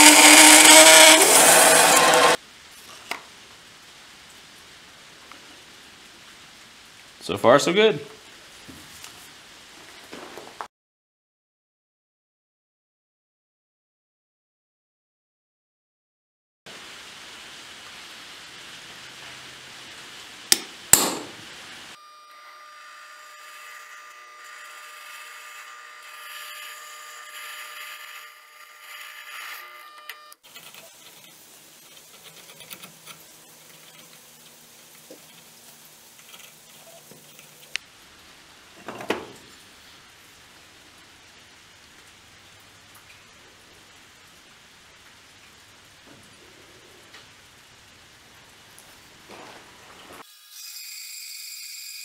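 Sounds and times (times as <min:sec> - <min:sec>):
drill press whining: 0:00.0 - 0:02.4
hammer striking center punch: 0:20.5 - 0:21.4.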